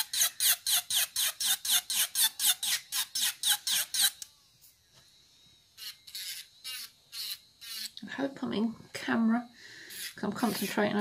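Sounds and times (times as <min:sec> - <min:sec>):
nail drill rasping on fingernail: 0:00.0 - 0:04.3, 0:05.8 - 0:08.0, 0:09.9 - 0:11.0.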